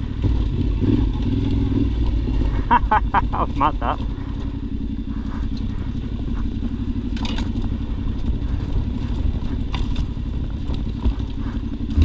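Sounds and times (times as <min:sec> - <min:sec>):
motorcycle engine running: 0:00.0 - 0:12.0
clatters from the track: 0:03.8 - 0:12.0.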